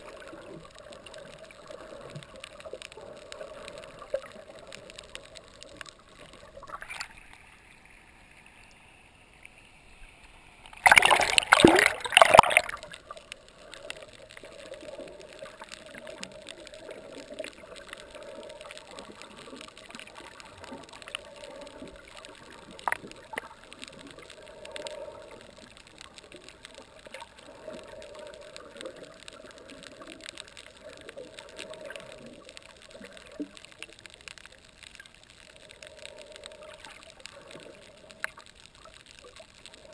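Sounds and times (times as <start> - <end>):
underwater hiss with crackling ticks: 0.0 - 39.9
gurgling rush of water: 10.7 - 34.0.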